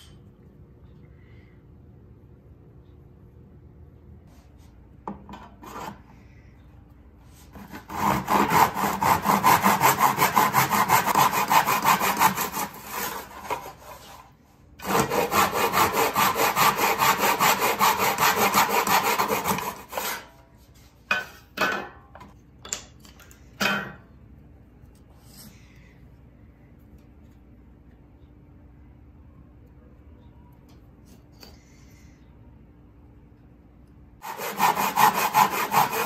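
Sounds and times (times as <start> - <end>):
saw cutting wood: 7.6 - 14.2, 14.8 - 20.3, 34.2 - 36.0.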